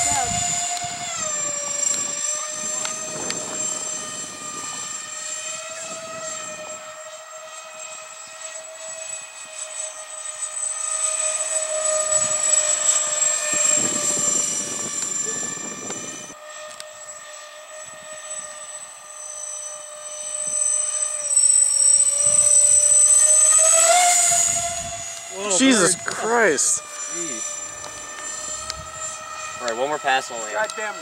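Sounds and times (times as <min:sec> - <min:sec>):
model plane electric fans whining: 0:00.0 - 0:31.0.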